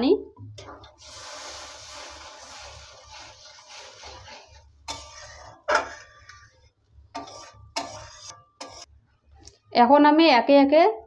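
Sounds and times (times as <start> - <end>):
spatula swishing in gravy: 1.0 - 8.9
spatula knocking metal pan: 7.2 - 8.9.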